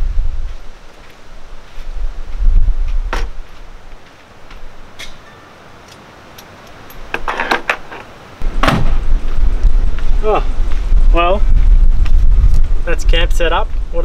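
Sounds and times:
wind rumble on microphone: 0:00.0 - 0:04.0, 0:08.4 - 0:14.0.

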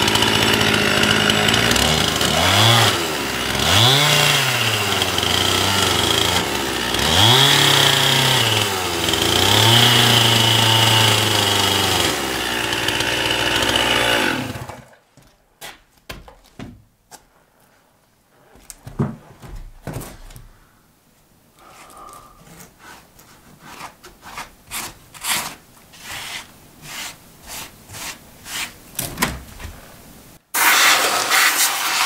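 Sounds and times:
chainsaw cutting wood: 0:00.0 - 0:15.0, 0:30.6 - 0:31.7
light knocks and rustles: 0:18.4 - 0:20.5.

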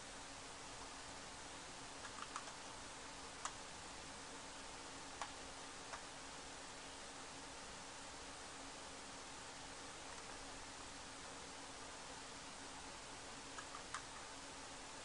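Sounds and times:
steady low hiss with hum: 0:00.0 - 0:15.0
computer input clicks: 0:02.0 - 0:02.7, 0:13.6 - 0:14.1.

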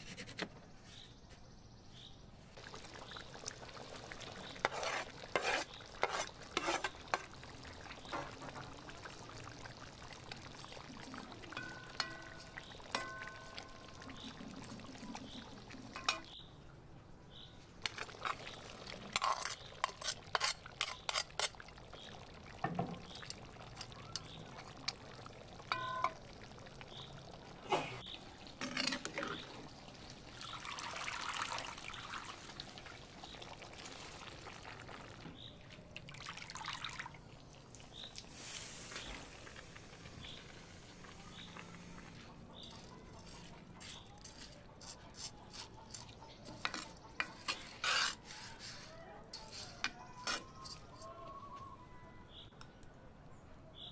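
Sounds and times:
liquid bubbling: 0:02.5 - 0:16.4, 0:17.8 - 0:44.0
metal skimmer scraping pot: 0:04.4 - 0:08.7, 0:11.5 - 0:16.4, 0:17.8 - 0:22.1, 0:25.7 - 0:26.2, 0:28.6 - 0:29.6, 0:41.2 - 0:51.1
rice pouring rush: 0:38.3 - 0:42.0.

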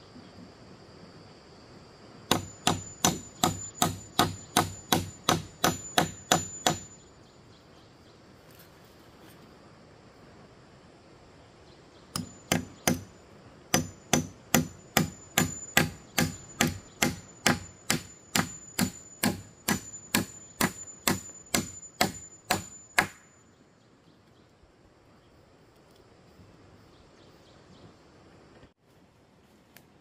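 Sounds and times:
hand tool striking metal: 0:02.3 - 0:07.0, 0:12.2 - 0:13.1, 0:13.7 - 0:23.3.

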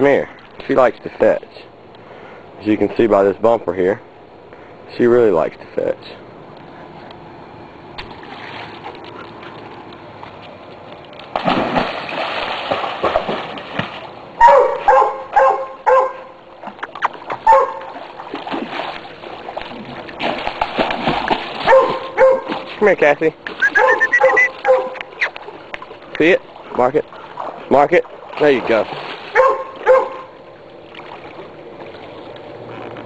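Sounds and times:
dog splashing in pool water: 0:08.0 - 0:10.4, 0:11.2 - 0:32.4
dog yipping: 0:14.4 - 0:16.3, 0:17.4 - 0:17.9, 0:21.7 - 0:22.5, 0:23.6 - 0:25.3, 0:29.3 - 0:30.3.

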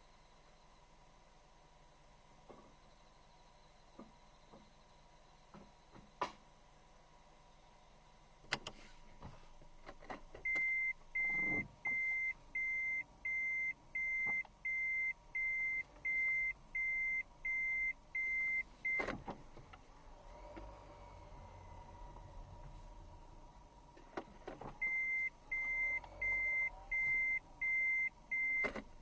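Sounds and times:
reverse warning beeps: 0:10.5 - 0:19.1, 0:24.8 - 0:28.8.

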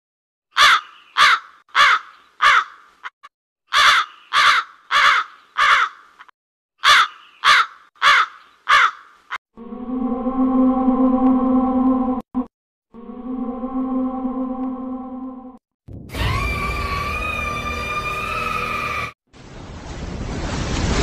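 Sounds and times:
crow cawing: 0:00.5 - 0:03.1, 0:03.7 - 0:09.4.

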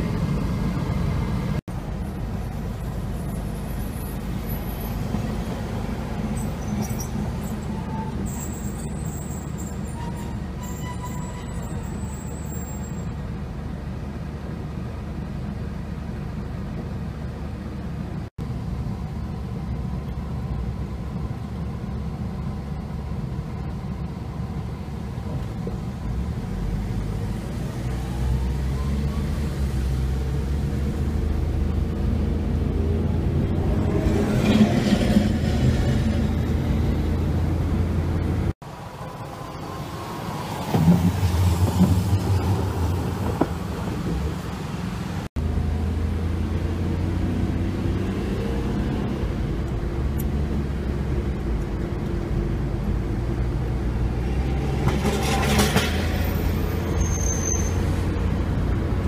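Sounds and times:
car engine and road noise: 0:00.0 - 0:59.0
tram passing by: 0:24.0 - 0:45.6, 0:49.2 - 0:59.0.

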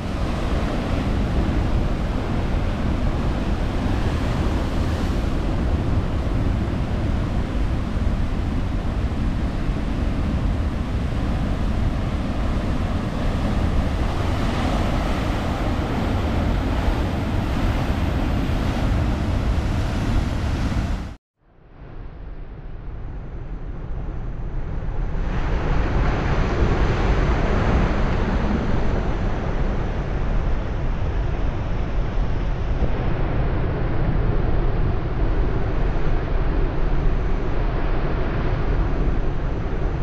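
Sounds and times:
heavy surf breaking: 0:00.0 - 0:21.2
wind rumbling on microphone: 0:00.0 - 0:40.0.

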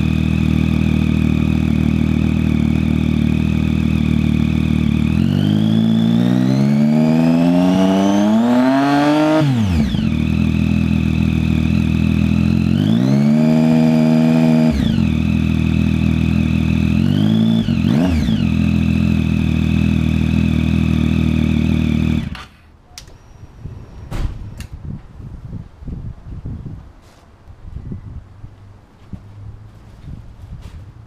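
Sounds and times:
motorcycle engine revving: 0:00.0 - 0:22.5.

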